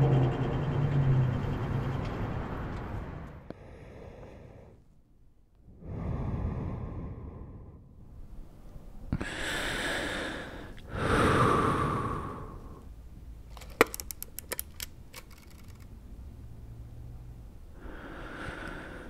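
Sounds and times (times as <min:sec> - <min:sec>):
breath-like rushing noise: 0:03.4 - 0:04.8, 0:05.7 - 0:08.2, 0:09.2 - 0:12.9, 0:17.8 - 0:19.0
sharp clicks and crackles: 0:13.5 - 0:15.9.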